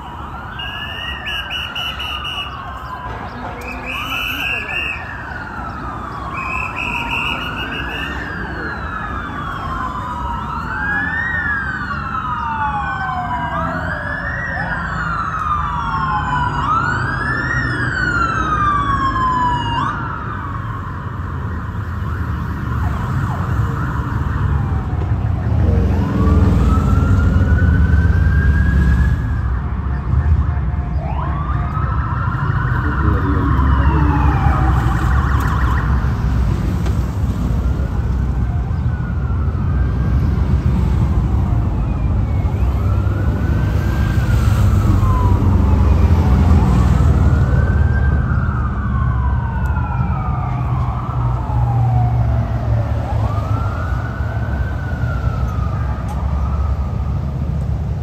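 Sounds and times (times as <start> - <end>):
police siren wailing: 0.0 - 58.0
steady low rumble: 32.8 - 35.1.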